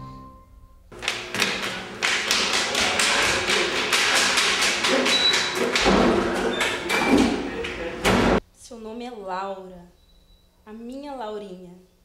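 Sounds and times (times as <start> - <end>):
bare footsteps running down stairs: 0.9 - 8.4.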